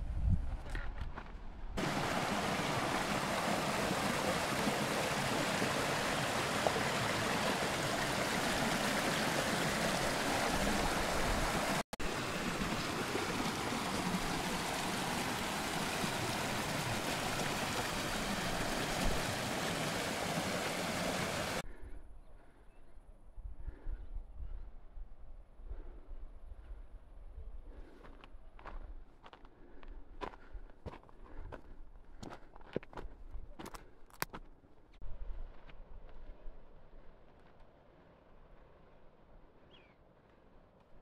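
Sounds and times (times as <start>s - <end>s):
creek water rushing: 1.8s - 21.6s.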